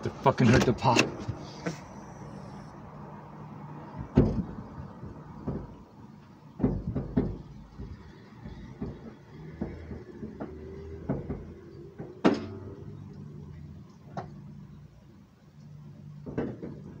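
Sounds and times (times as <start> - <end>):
dull clunks from car trunk: 4.0 - 5.8, 6.6 - 12.6.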